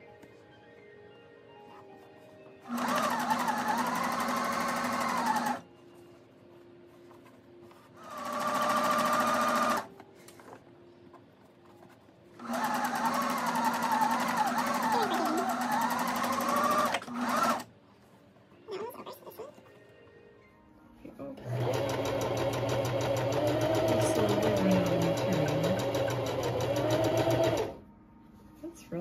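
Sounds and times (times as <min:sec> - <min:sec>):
sewing machine stitching: 0:02.7 - 0:05.6, 0:08.0 - 0:09.9, 0:12.4 - 0:17.7, 0:21.4 - 0:27.8.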